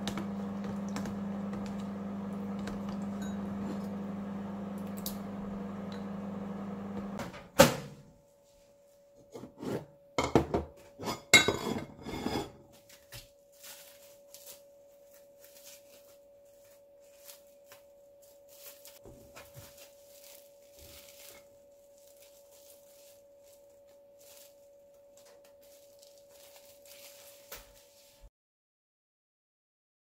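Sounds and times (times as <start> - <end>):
dishes clattering on steel counter: 10.2 - 12.6
plastic wrap crinkling: 12.8 - 28.3.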